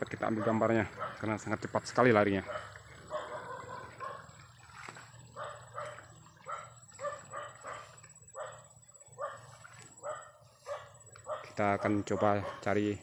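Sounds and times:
dog barking: 0.3 - 1.3, 2.4 - 4.3, 5.3 - 12.9.

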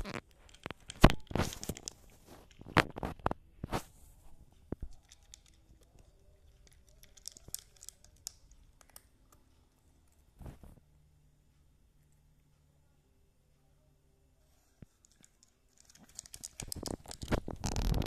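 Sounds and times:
cat crunching dry kibble: 0.1 - 3.4, 4.8 - 9.5, 15.1 - 18.0.

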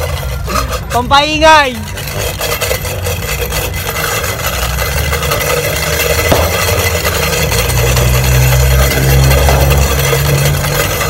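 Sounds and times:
vehicle engine revving: 2.9 - 11.0.

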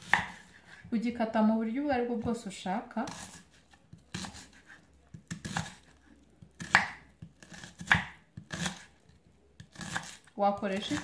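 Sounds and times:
knife slicing onion on cutting board: 0.0 - 0.9, 3.0 - 8.9, 9.6 - 11.0.

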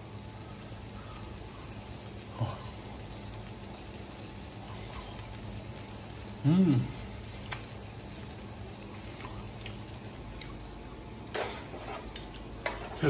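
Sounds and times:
meat sizzling on a grill: 0.0 - 10.4, 11.0 - 13.0
mouth sound of eating: 6.3 - 7.2.

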